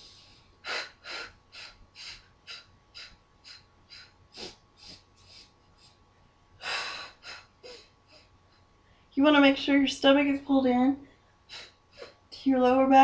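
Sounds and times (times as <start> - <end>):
woman breathing in sharp puffs: 0.0 - 6.0.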